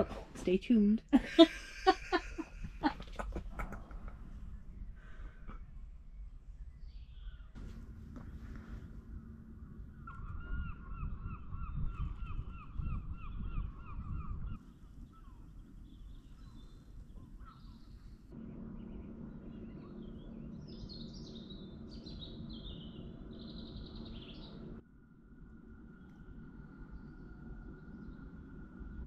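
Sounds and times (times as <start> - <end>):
low rumble: 0.0 - 29.0
steady low hum: 0.0 - 29.0
repeated bird calls: 6.1 - 24.8
high chirping bird calls: 9.9 - 18.2, 18.8 - 24.8.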